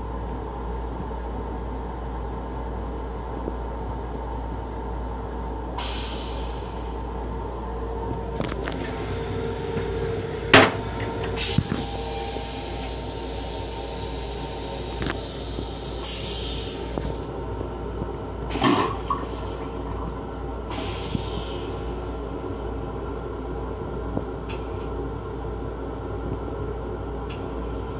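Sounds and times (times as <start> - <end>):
train hum: 0.0 - 27.9
toilet flushing: 8.6 - 17.2, 18.5 - 20.1.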